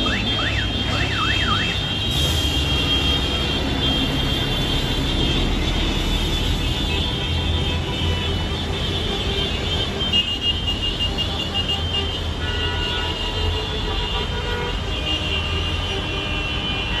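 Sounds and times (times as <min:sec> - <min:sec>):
horn beeps: 0:00.0 - 0:06.4.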